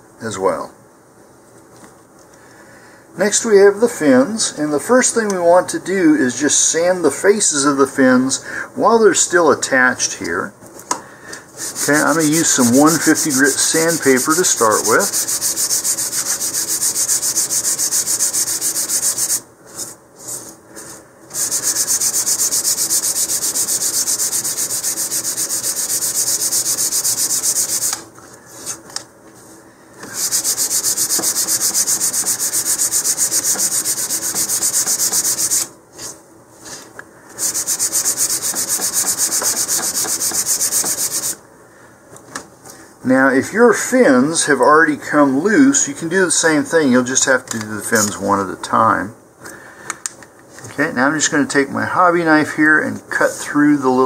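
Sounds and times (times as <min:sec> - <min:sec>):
sandpaper scratching on wood: 0:11.6 - 0:19.4, 0:21.3 - 0:28.0, 0:30.1 - 0:35.7, 0:37.4 - 0:41.4.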